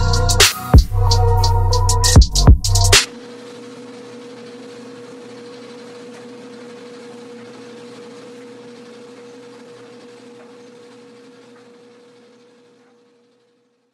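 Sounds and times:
steady hum with held tone: 0.0 - 13.9.

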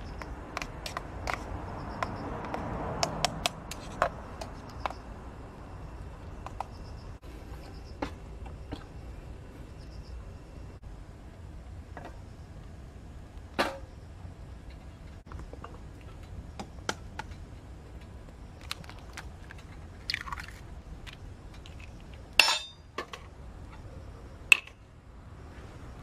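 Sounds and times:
twigs crackling and popping: 18.0 - 22.2
metal pot clinking on grill: 22.4 - 23.2.

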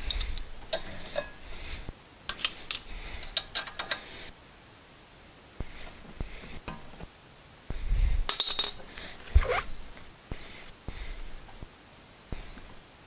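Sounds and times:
metal tools clinking: 8.3 - 8.9.

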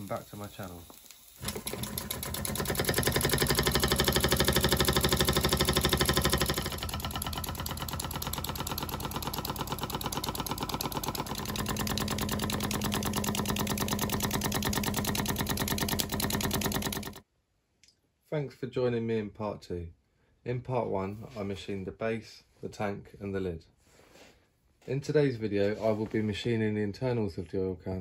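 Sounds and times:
model steam engine beating: 1.4 - 17.2.

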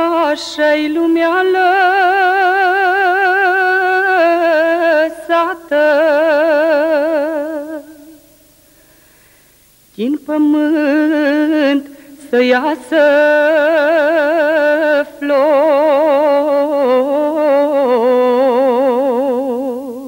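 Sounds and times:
woman singing unaccompanied: 0.0 - 8.4, 9.9 - 20.0.

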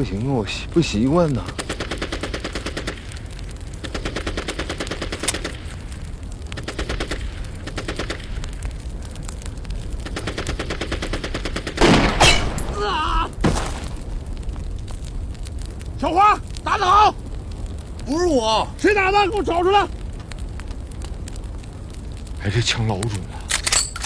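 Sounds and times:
machine-gun fire: 10.2 - 12.7
loud close gunshots: 10.6 - 13.9.

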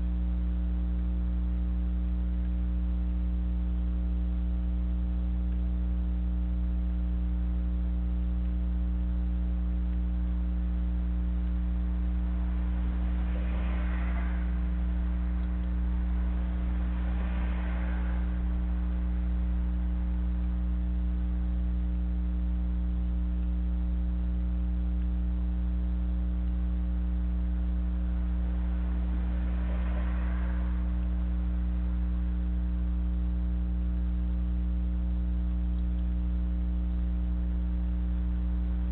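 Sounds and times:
electrical hum: 0.0 - 38.9
faint hiss: 10.8 - 21.0.

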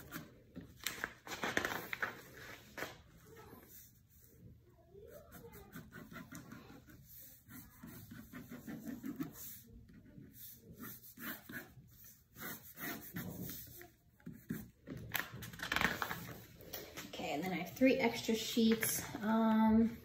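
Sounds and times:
paper sheets rustling: 0.6 - 3.1, 15.1 - 17.1
pen scratching on paper: 5.1 - 15.0.

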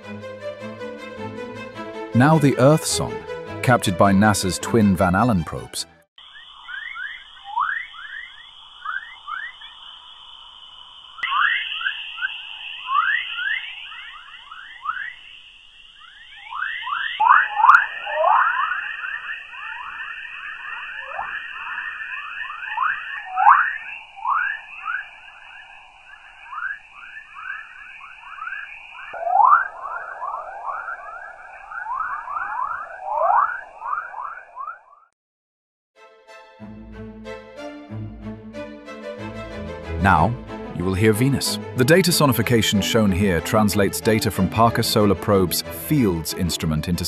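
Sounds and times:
steady high tone: 2.2 - 4.7, 6.2 - 34.9
quick rising chirps: 6.2 - 35.1.

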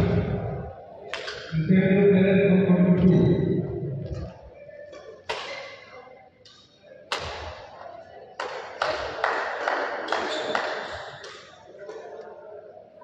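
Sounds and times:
racket striking shuttlecock: 5.3 - 5.8.

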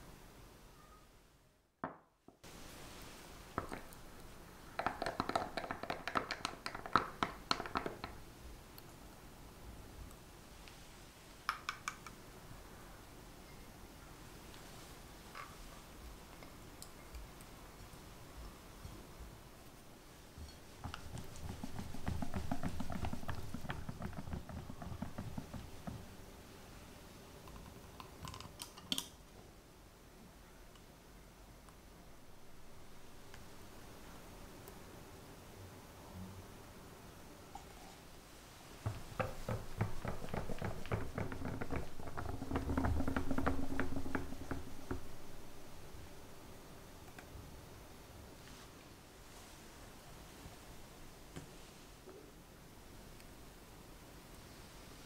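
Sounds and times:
whisk stirring thick mixture: 20.8 - 26.0
wire whisk beating in glass bowl: 20.8 - 26.0, 39.2 - 45.5.

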